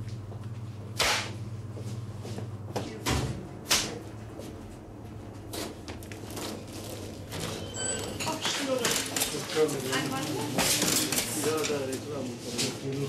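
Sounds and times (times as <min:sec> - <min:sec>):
steady low hum: 0:00.0 - 0:13.0
arrows striking packaged goods: 0:01.0 - 0:01.4.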